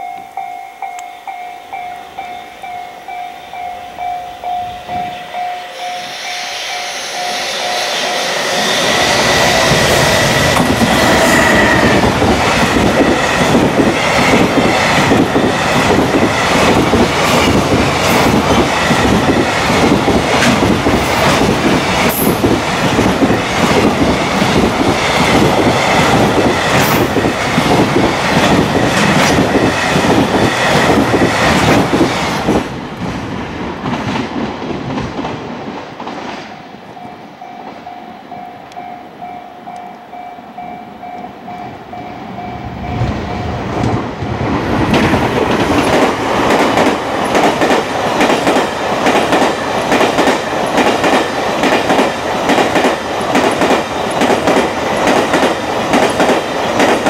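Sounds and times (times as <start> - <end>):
freight train passing: 0.0 - 57.0
wheels clickety-clack over rail joints: 9.8 - 36.5, 42.8 - 57.0.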